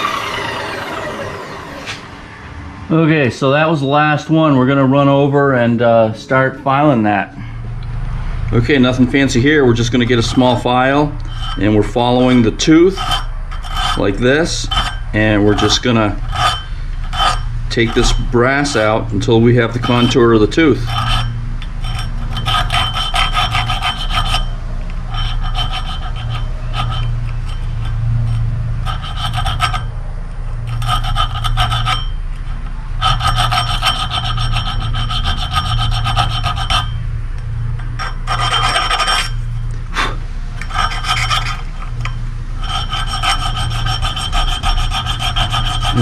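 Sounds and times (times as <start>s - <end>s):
hand file rasping on metal: 8.8s - 29.9s, 30.6s - 37.0s, 38.0s - 39.5s, 40.6s - 46.0s.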